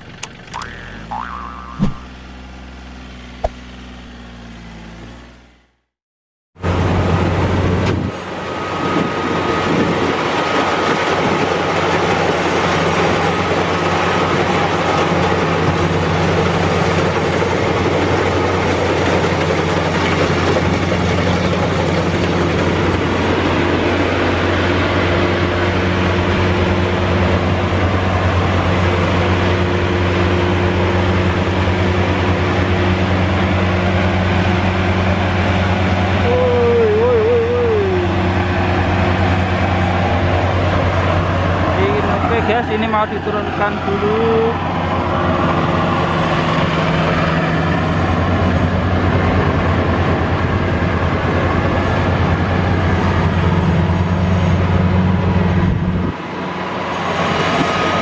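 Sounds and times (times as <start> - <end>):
harvester engine drone: 0.0 - 5.8, 6.6 - 58.0
short wavering tone: 0.5 - 4.0
threshing machinery noise: 6.6 - 58.0.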